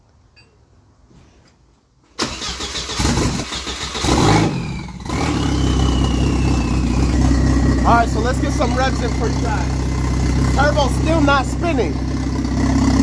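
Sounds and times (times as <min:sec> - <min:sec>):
car engine starting and idling: 0:02.2 - 0:13.0
faint high turbo whine: 0:04.7 - 0:13.0.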